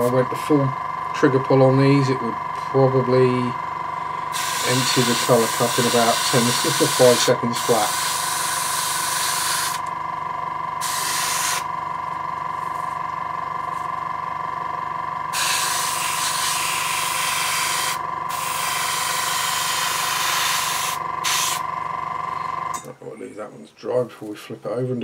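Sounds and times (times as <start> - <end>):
air compressor humming: 0.0 - 22.9
airbrush hissing: 4.3 - 9.8, 10.8 - 11.7, 15.3 - 21.6.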